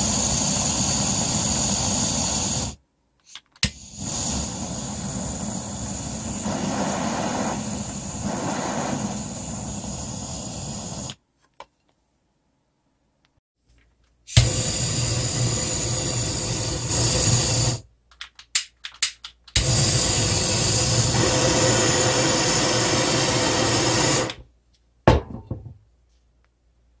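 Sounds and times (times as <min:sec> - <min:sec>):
butane torch flame hissing: 0:00.0 - 0:02.8, 0:03.7 - 0:11.2, 0:14.4 - 0:17.9, 0:19.6 - 0:24.4
torch igniting with a pop: 0:03.7 - 0:11.2, 0:19.6 - 0:24.4.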